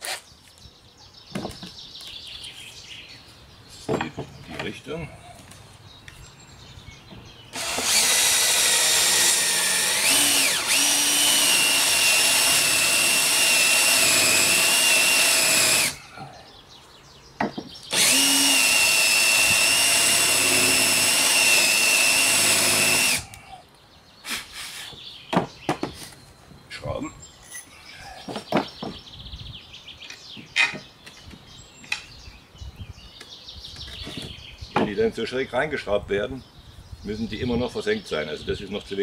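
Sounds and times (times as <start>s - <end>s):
cordless drill whining: 7.5s - 16.0s, 17.9s - 23.4s.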